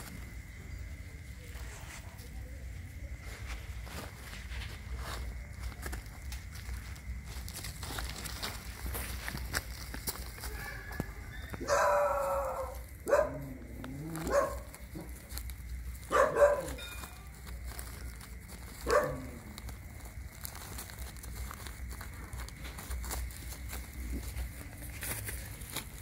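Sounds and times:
dog barking: 0:11.6 - 0:15.1, 0:16.0 - 0:16.8, 0:18.8 - 0:19.4.

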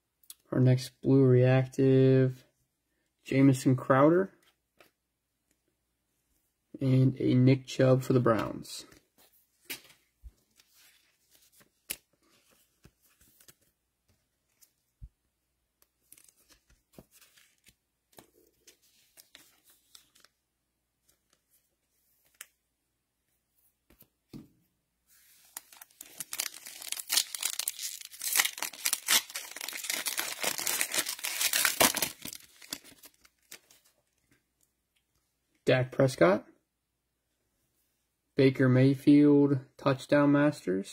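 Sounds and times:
foil wrapper tearing and crinkling: 0:25.5 - 0:33.6.

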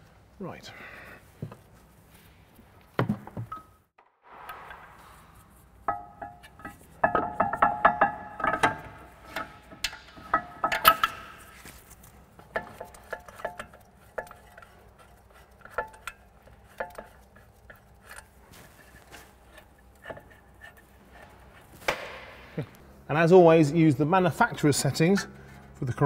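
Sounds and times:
metallic clinks and knocks: 0:05.8 - 0:21.6.

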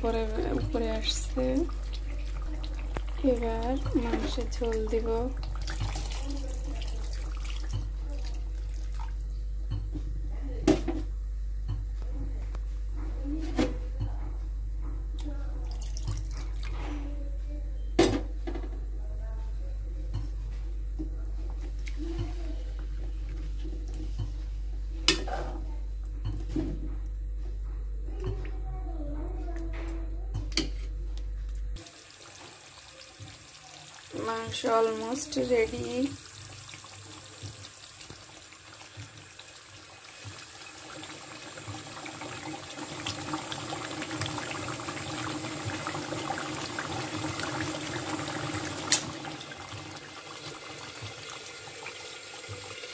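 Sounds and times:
gravy bubbling and spluttering: 0:00.0 - 0:09.4, 0:32.2 - 0:52.9
steady low hum: 0:00.0 - 0:32.2.

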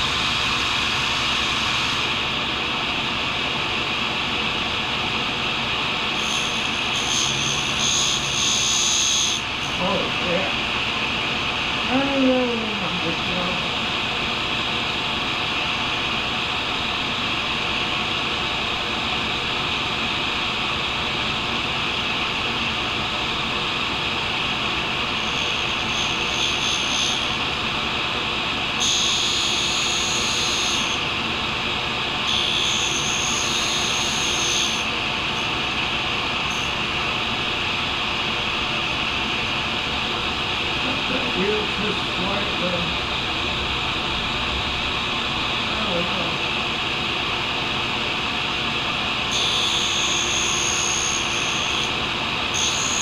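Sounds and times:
grinder wheel hissing: 0:06.1 - 0:10.6, 0:25.0 - 0:27.5, 0:32.3 - 0:35.6, 0:49.3 - 0:53.0.

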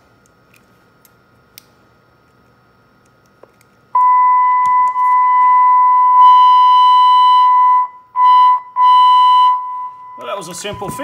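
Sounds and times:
higher beep tone: 0:04.0 - 0:11.0
loud steady beep tone: 0:04.0 - 0:11.0.

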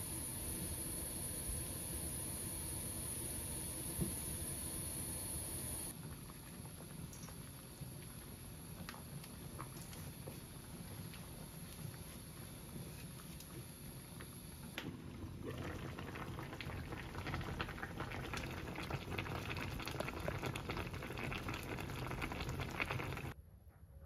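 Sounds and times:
stew bubbling at the boil: 0:00.0 - 0:23.4.

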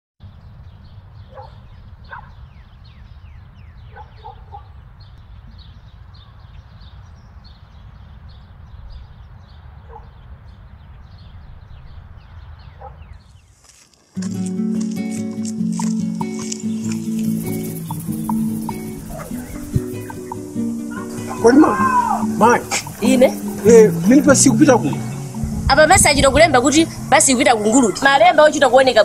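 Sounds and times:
birds chirping: 0:00.2 - 0:29.0
music: 0:14.2 - 0:29.0
lower animal calls: 0:15.6 - 0:28.1.

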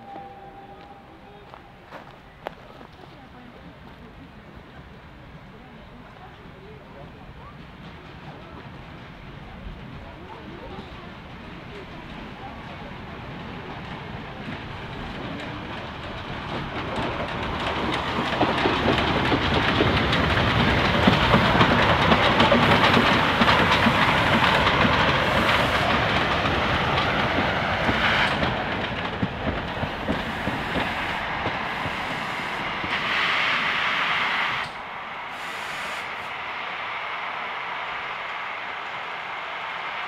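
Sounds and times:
steam locomotive passing: 0:00.0 - 0:40.0
wheels clattering on rails: 0:14.4 - 0:32.1
steam hiss: 0:14.7 - 0:40.0.

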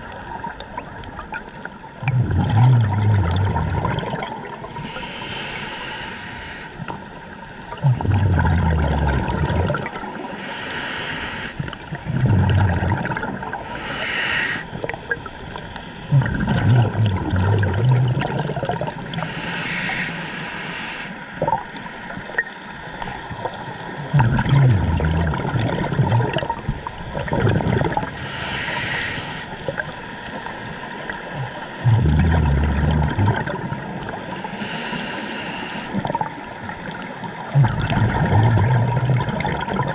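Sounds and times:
exhaled bubbles rushing: 0:00.0 - 0:04.7, 0:07.7 - 0:10.2, 0:11.6 - 0:13.7, 0:14.7 - 0:19.2, 0:23.2 - 0:28.2, 0:29.6 - 0:34.4, 0:35.9 - 0:39.9
regulator hissing inhale: 0:04.6 - 0:06.9, 0:10.1 - 0:11.8, 0:13.5 - 0:14.8, 0:19.1 - 0:23.4, 0:28.1 - 0:29.7, 0:34.2 - 0:36.0.

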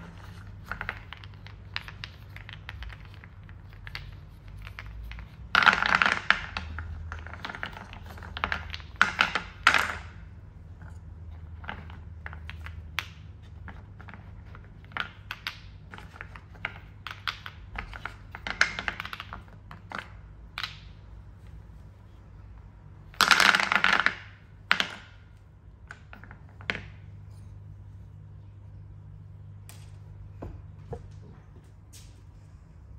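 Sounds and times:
wooden balls clicking into a bowl: 0:00.0 - 0:21.1, 0:23.1 - 0:27.1
wooden balls clattering: 0:00.0 - 0:27.8.

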